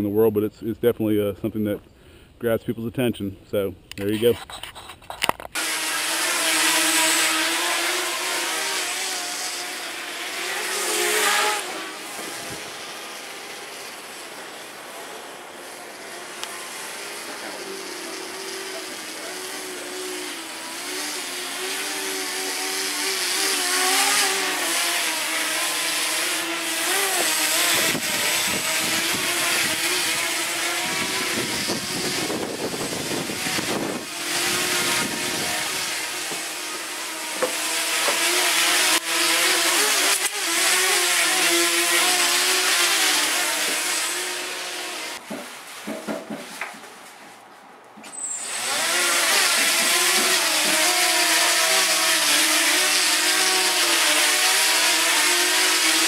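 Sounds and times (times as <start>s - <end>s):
drone motors buzzing: 5.4s - 45.2s, 48.1s - 56.0s
wind rumbling on microphone: 30.8s - 35.6s.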